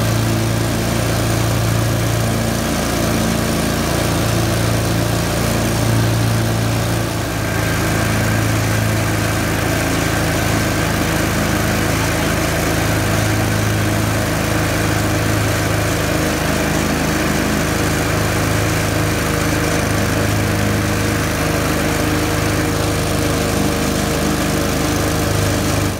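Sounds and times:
mower engine running: 0.0s - 25.9s.

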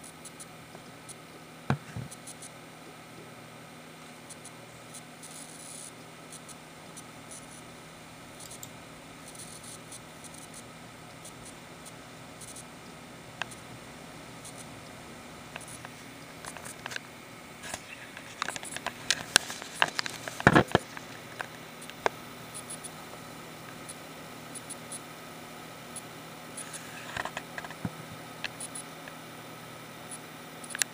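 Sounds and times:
power supply high-pitched noise: 0.0s - 30.9s
handling clicks and scrapes: 15.6s - 17.0s, 17.6s - 22.1s.

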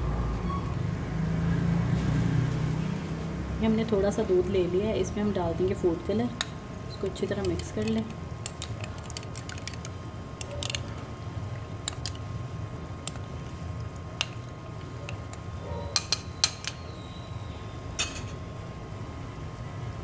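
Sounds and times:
steady low hum: 2.8s - 20.0s
spoon clinking against glass bowl: 18.0s - 18.4s.

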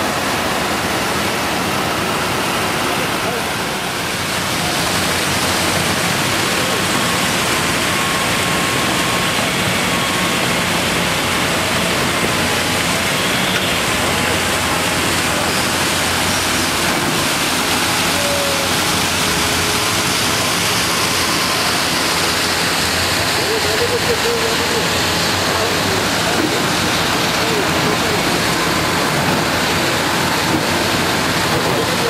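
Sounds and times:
water rushing: 0.0s - 32.0s.

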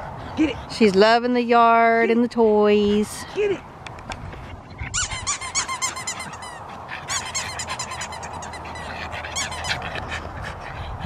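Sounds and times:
squeaky toy squeaking: 4.9s - 9.9s.

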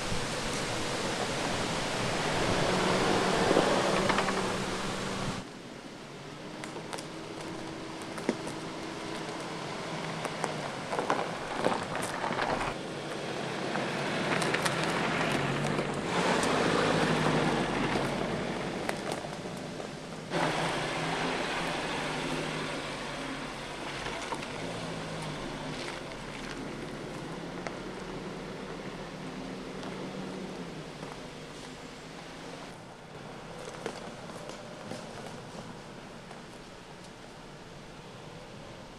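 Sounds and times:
tyres crunching over soil and stones: 6.4s - 37.3s.

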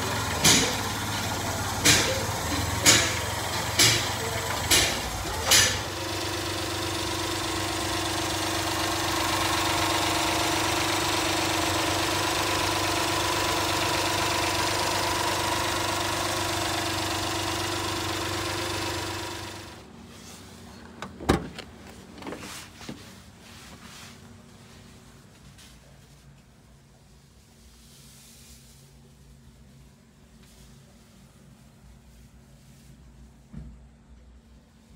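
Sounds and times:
small truck engine idling: 0.0s - 19.9s.

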